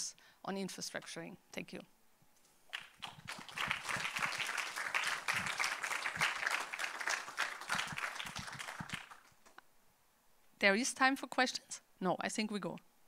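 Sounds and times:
audience applauding: 2.7s - 9.4s.

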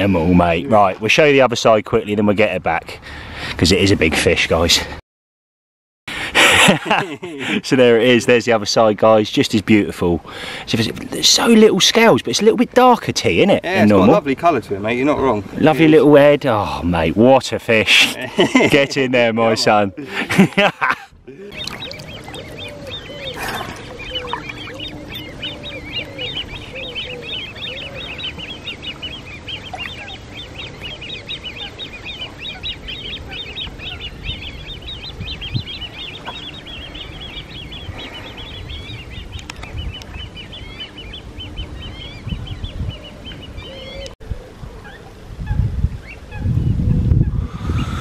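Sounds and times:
birds chattering: 0.0s - 5.0s, 6.1s - 48.0s
lower bird calls: 21.4s - 48.0s.

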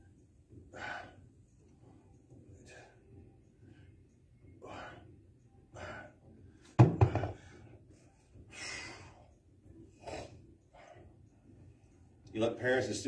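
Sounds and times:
heavy breathing: 0.7s - 1.3s
dumbbell thunk on rubber mat: 6.8s - 7.4s.

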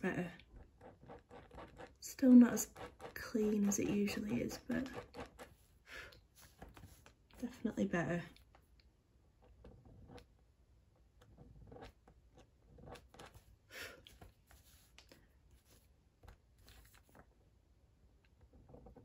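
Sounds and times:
blade scraping paper: 0.8s - 5.7s.

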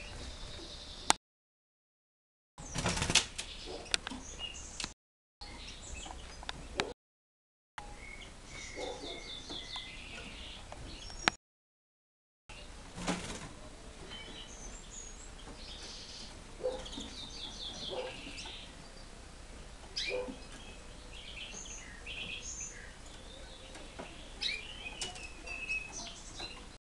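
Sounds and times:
small birds chirping: 0.0s - 1.2s, 2.6s - 7.0s, 7.8s - 11.4s, 12.5s - 26.8s
wings fluttering: 2.6s - 3.6s, 12.8s - 13.6s.

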